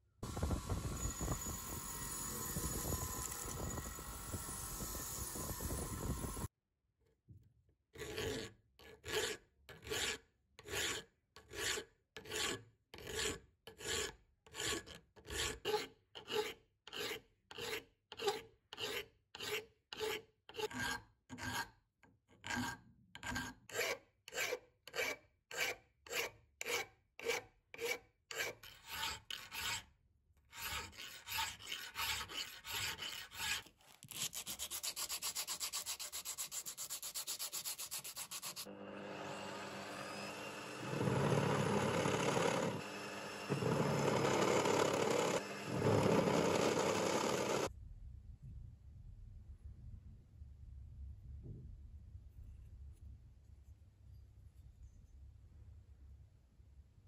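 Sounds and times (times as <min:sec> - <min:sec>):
file rasping on cast iron: 0:08.0 - 0:21.8, 0:22.4 - 0:29.9, 0:30.5 - 0:38.7, 0:43.4 - 0:47.7
hand sanding cast iron: 0:30.5 - 0:38.7.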